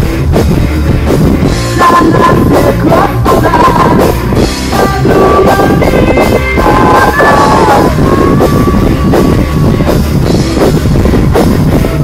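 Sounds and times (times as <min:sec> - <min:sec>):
live rock band playing: 0:00.0 - 0:12.0
woman singing: 0:01.7 - 0:09.9.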